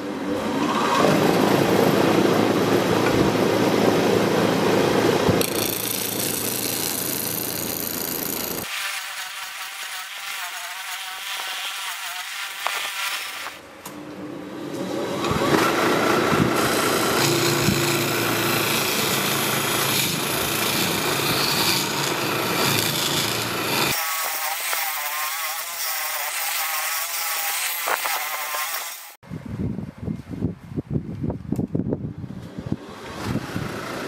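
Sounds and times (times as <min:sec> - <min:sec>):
wood lathe turning tool scraping: 0:05.4 - 0:13.6, 0:15.4 - 0:29.2.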